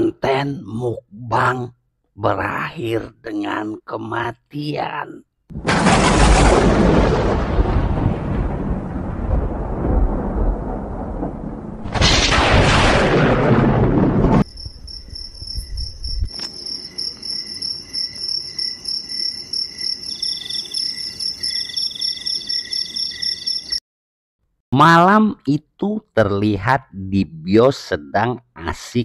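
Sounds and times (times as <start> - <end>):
thunder rumbling: 5.5 - 16.4
crickets chirping: 14.4 - 23.8
high insect trill: 14.4 - 23.8.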